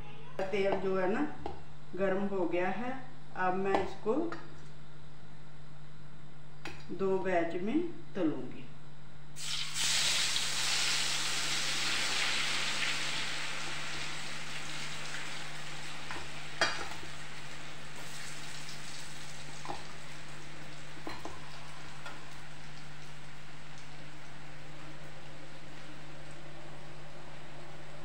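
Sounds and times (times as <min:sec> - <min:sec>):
hot oil sizzling: 0:09.4 - 0:26.5.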